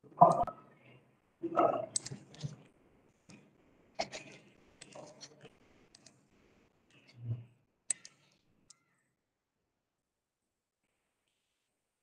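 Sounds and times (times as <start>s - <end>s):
faint clicks and light taps: 1.9s - 8.9s.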